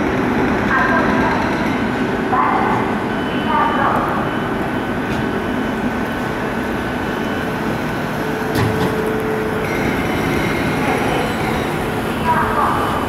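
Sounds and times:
electric train rumbling: 0:00.0 - 0:13.0
train wheel clack: 0:08.5 - 0:11.8.

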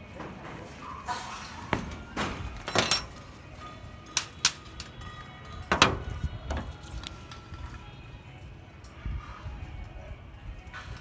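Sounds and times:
steel rebar knocking and clinking: 0:02.6 - 0:03.2.

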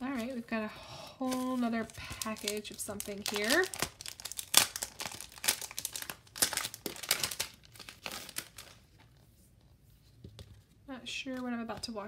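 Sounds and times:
plastic sleeve crinkling: 0:01.2 - 0:09.2.

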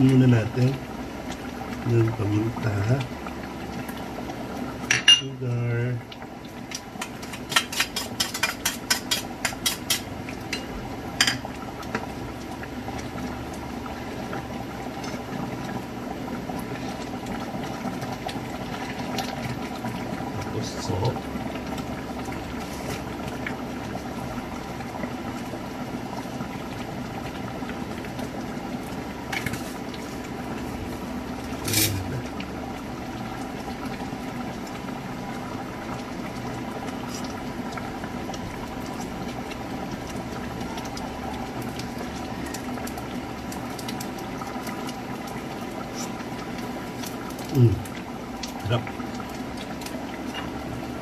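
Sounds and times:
sauce bubbling in a frying pan: 0:00.0 - 0:51.0.

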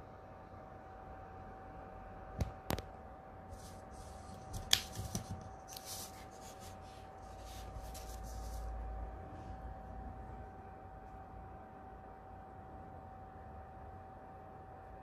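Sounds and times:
plastic rustling and scraping: 0:03.5 - 0:08.7.

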